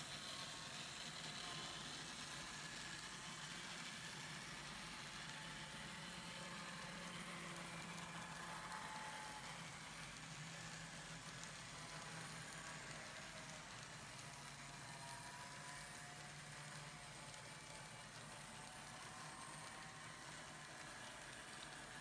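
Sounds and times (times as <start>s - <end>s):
model train wheels rolling hiss: 0.0s - 22.0s.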